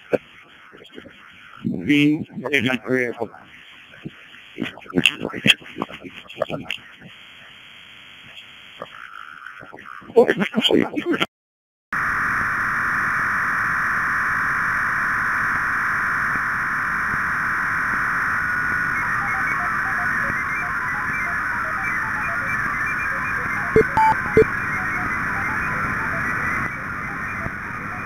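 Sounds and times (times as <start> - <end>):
digital radio signal hiss: 0.0 - 11.3, 12.0 - 28.0
stepping digital tones: 19.0 - 28.0
short beeps: 23.6 - 24.5.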